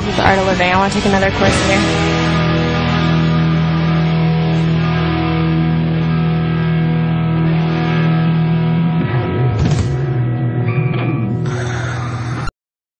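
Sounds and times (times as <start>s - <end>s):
sustained music chord: 0.0s - 9.6s.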